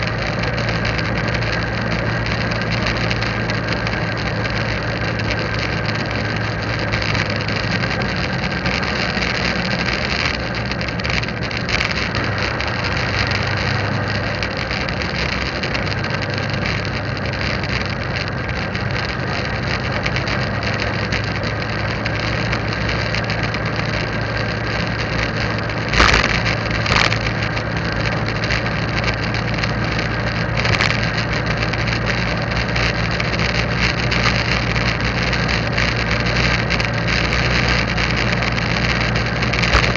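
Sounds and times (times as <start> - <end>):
motorbike engine and road noise: 0.0 - 39.9
sharp knocks: 26.0 - 27.1.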